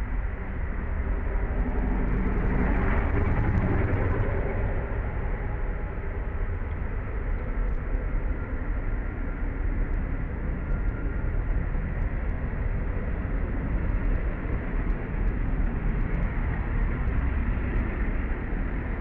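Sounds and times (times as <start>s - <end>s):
low rumbling background noise: 0.0s - 19.0s
faint ticks: 10.6s - 12.5s.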